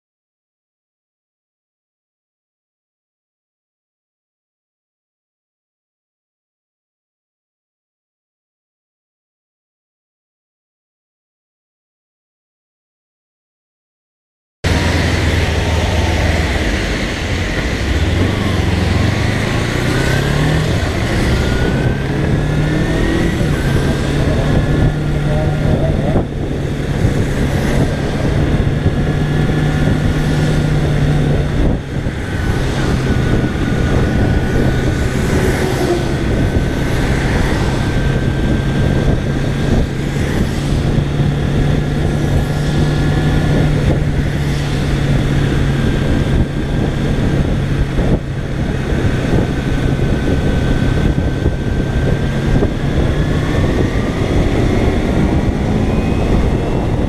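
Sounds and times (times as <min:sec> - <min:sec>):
motorcycle engine droning: 0:14.6 - 0:57.0
wind rush: 0:14.6 - 0:57.0
tyres hissing on wet road: 0:34.7 - 0:38.0.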